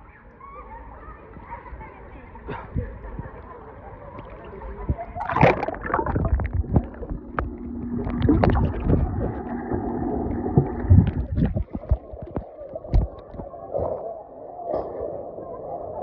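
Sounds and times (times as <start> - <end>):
low hum: 4.2 - 13.5
water splashing and churning: 4.2 - 14.0.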